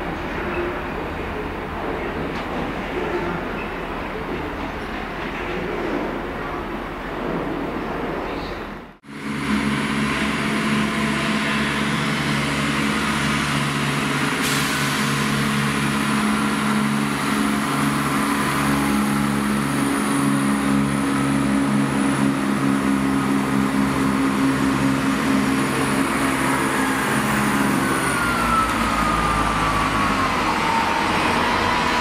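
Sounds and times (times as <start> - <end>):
diesel train engines humming: 8.6 - 32.0.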